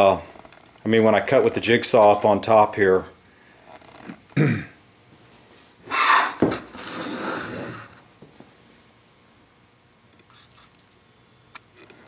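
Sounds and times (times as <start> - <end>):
wood scraping on wood: 5.9 - 8.0.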